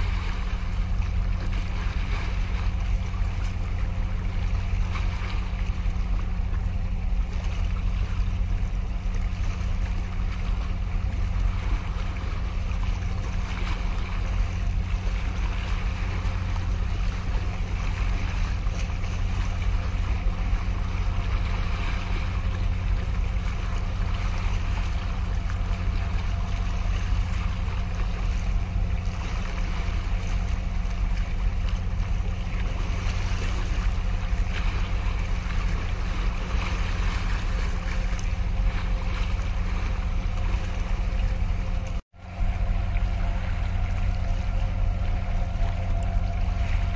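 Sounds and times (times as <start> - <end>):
steady low drone: 0.0 - 46.9
waves sloshing against concrete: 0.0 - 46.9.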